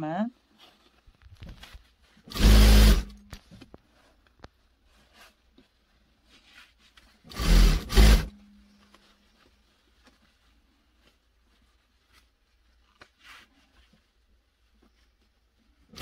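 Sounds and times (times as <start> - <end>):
sewing machine stitching: 2.3 - 3.2, 7.3 - 8.4.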